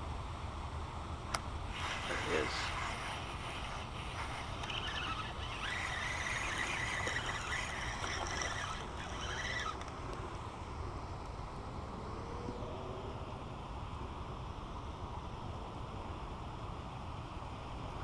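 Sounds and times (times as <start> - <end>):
fishing reel whirring: 1.7 - 10.3.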